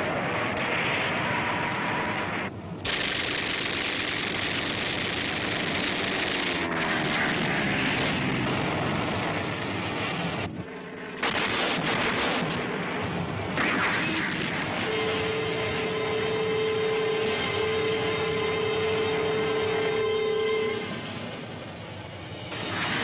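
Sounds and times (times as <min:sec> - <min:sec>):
propeller plane engine: 0:00.0 - 0:13.8, 0:14.4 - 0:23.0
gunfire bangs: 0:11.2 - 0:15.2.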